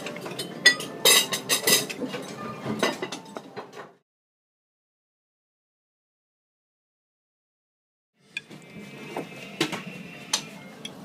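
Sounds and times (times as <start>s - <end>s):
dishes and cutlery clinking: 0.0s - 4.0s.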